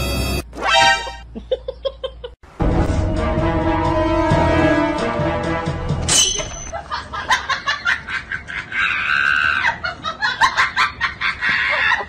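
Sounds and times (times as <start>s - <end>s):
music: 0.0s - 1.2s, 2.6s - 6.2s
people laughing: 6.7s - 12.0s.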